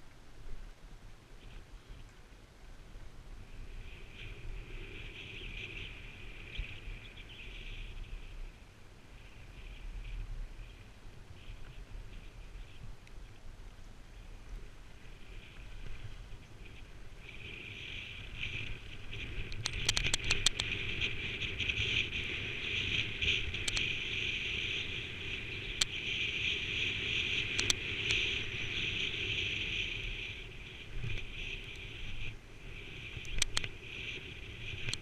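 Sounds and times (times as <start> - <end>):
skis sliding on packed snow: 0.0 - 35.0
sharp clicks: 19.5 - 20.7, 23.6 - 23.9, 27.6 - 27.8, 33.2 - 33.7.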